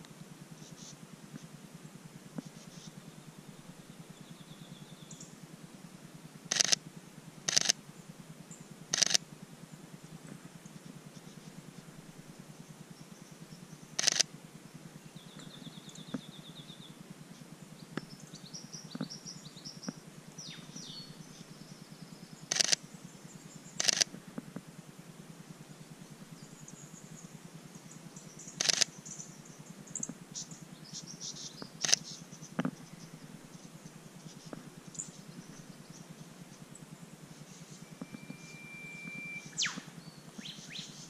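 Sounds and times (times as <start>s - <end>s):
small birds chirping: 0.5s - 1.5s, 2.4s - 5.4s, 7.5s - 24.1s, 25.5s - 41.0s
camera shutter bursts: 6.5s - 6.8s, 7.5s - 7.8s, 8.9s - 9.2s, 14.0s - 14.3s, 22.5s - 22.8s, 23.8s - 24.1s, 28.6s - 28.9s, 31.8s - 32.1s
bird trilling: 37.7s - 41.0s.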